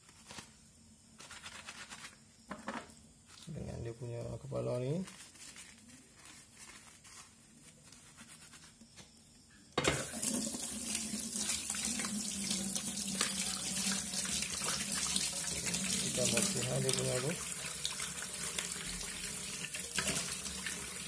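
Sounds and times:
bottle brush scrubbing: 5.0 - 8.9
tap water running into sink: 9.8 - 21.0.

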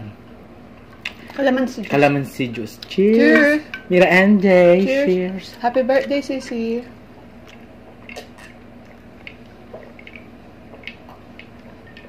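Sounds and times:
steady low hum: 0.0 - 12.0
people swallowing: 7.4 - 12.0.

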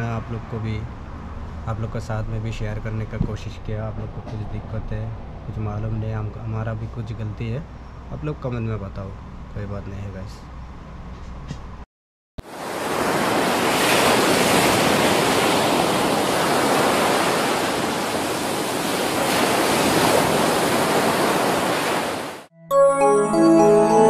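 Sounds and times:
gentle keyboard music: 22.5 - 24.0.

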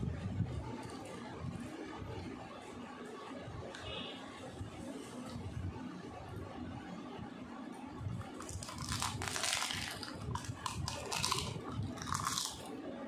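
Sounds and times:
crunchy snack being chewed: 8.2 - 12.8.

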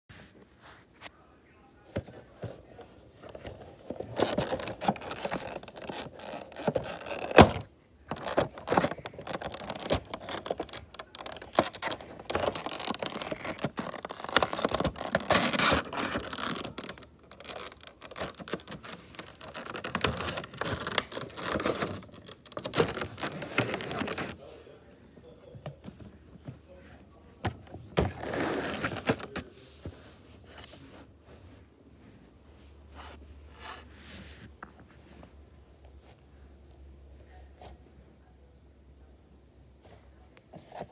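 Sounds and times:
cardboard box scraping and rustling: 11.4 - 24.4, 28.0 - 29.5.

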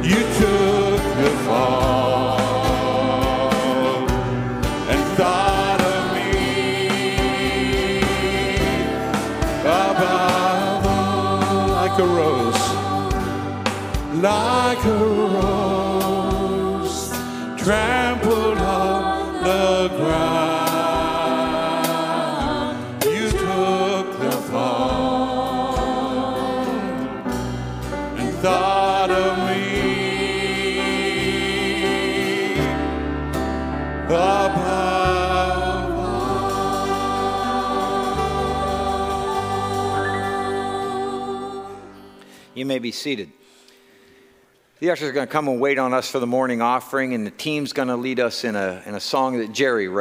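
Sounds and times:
instrumental backing with bass: 0.0 - 42.4
voices singing worship song: 0.0 - 42.8.

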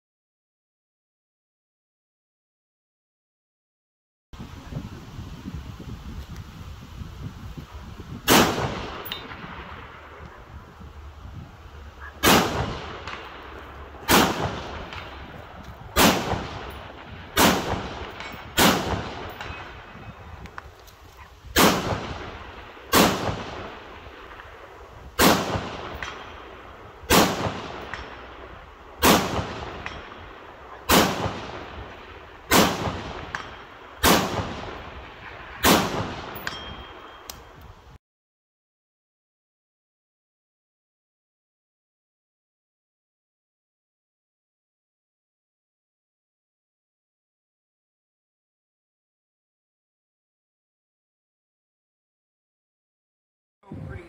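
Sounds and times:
rifle shots with echo: 8.2 - 10.7, 12.0 - 20.7, 21.5 - 37.3.

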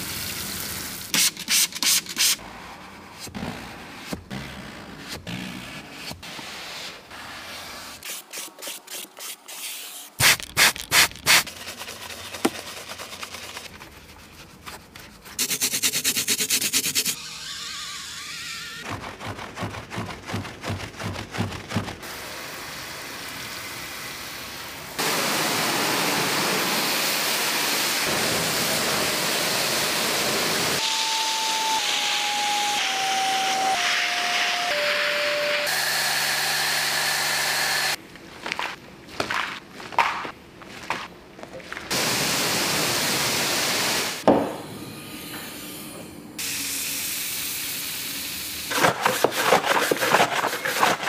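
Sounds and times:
brushes scrubbing upholstery: 5.9 - 17.2, 48.7 - 51.0.

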